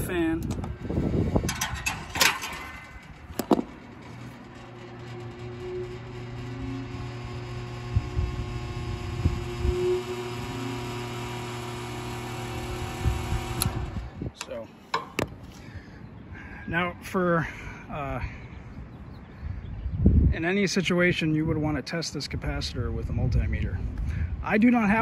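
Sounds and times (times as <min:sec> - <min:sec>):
condensing unit electrical hum: 0:00.0 - 0:25.0
contactor clicks: 0:07.1 - 0:15.4.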